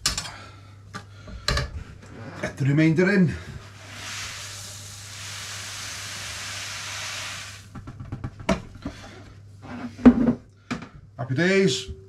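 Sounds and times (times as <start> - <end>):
malt pouring into water: 3.8 - 7.7.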